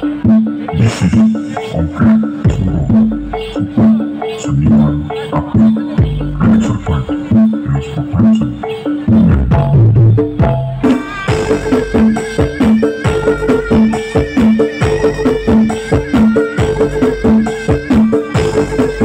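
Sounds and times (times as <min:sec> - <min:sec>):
repeated low note: 0:00.0 - 0:12.2
drums and percussion: 0:00.0 - 0:19.0
higher melody line: 0:00.0 - 0:19.0.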